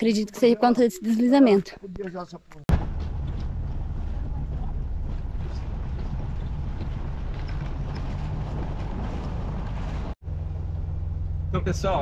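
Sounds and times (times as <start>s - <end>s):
road noise: 2.7s - 12.0s
car engine drone: 2.8s - 12.0s.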